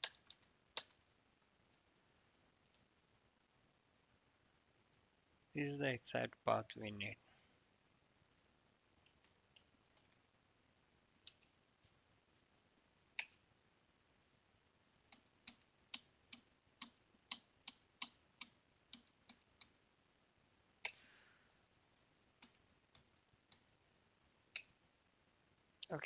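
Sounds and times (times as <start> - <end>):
computer keyboard keystrokes: 0.0 - 1.0.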